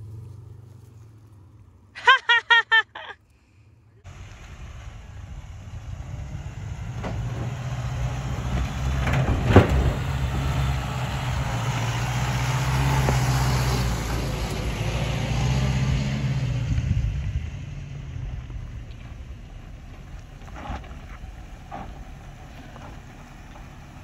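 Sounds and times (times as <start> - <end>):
pickup truck engine running: 16.6 - 24.0.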